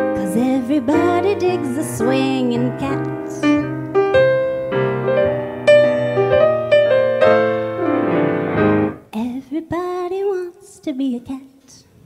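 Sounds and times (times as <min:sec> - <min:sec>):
swing piano playing: 0:00.0 - 0:09.0.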